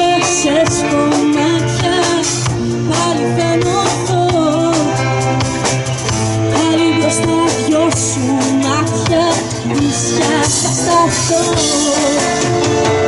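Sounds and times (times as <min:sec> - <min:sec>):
bass guitar: 0:00.0 - 0:13.0
drum kit beat: 0:00.0 - 0:13.0
electric guitars: 0:00.0 - 0:13.0
woman singing lead melody: 0:00.0 - 0:13.0.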